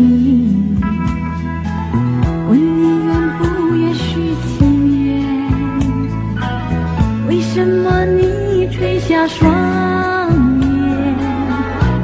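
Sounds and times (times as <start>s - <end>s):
woman singing pop ballad: 0.0s - 1.6s, 2.2s - 12.0s
band accompaniment: 0.0s - 12.0s.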